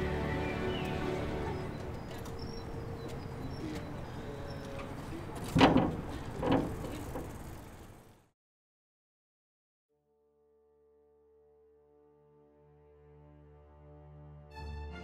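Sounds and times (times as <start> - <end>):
music: 0.0 - 2.0, 10.8 - 15.0
faint bird chirps: 0.7 - 4.8
iron gates shutting with knocks: 4.7 - 7.5.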